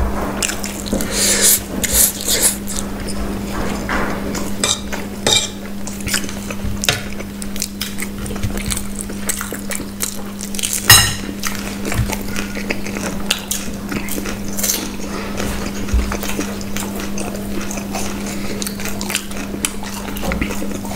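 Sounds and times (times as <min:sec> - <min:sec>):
steady low hum: 0:00.0 - 0:20.9
cutlery clatter: 0:04.6 - 0:05.6, 0:10.9 - 0:11.3
forks clinking on plates: 0:04.6 - 0:05.6, 0:10.9 - 0:11.4.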